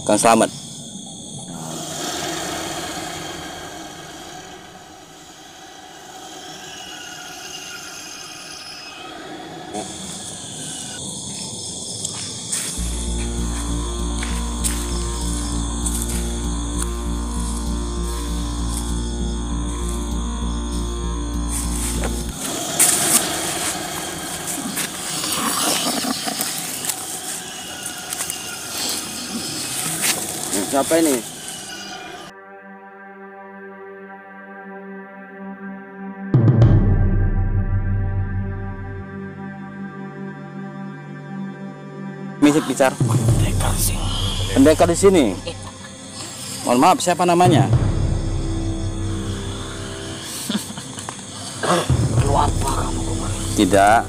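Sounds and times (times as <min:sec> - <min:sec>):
night insects shrilling: 0:00.0 - 0:32.3, 0:39.1 - 0:54.0
vehicle engine rumbling: 0:12.8 - 0:27.1.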